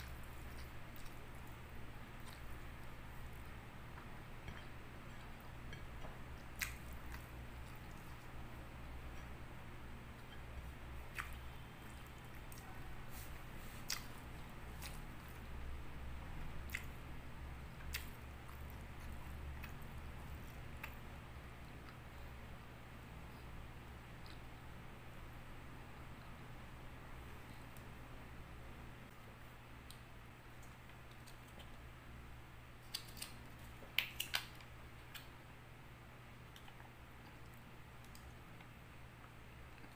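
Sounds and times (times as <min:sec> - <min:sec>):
faint low hum: 0:00.0 - 0:39.9
wet chewing mouth clicks: 0:06.4 - 0:08.3, 0:13.8 - 0:14.2.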